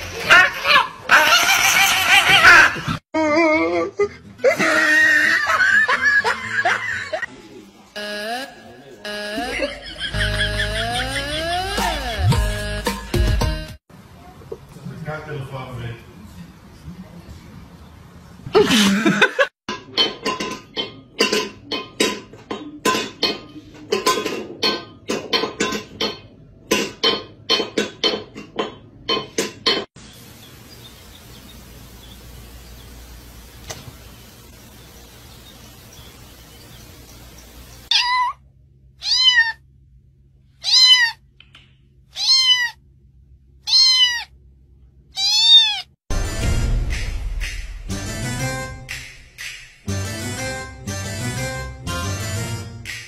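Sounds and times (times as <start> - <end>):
plucked-note music: 8.0 - 13.5
cat meowing: 37.9 - 38.4, 39.0 - 39.6, 40.6 - 41.2, 42.1 - 42.8, 43.6 - 44.3, 45.1 - 46.0.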